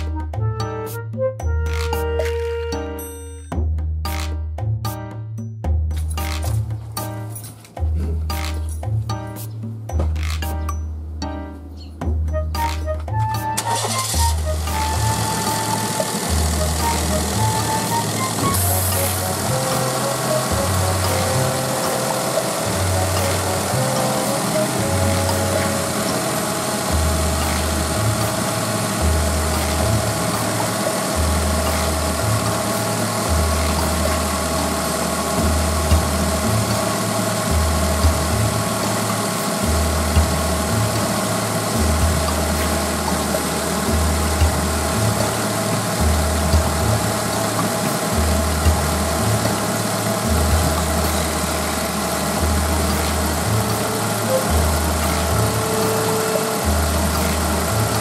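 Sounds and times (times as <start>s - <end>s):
small car engine idling: 13.6s - 58.0s.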